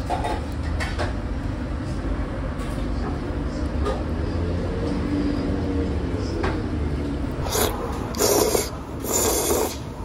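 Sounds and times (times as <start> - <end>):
person slurping noodles: 7.4 - 10.0.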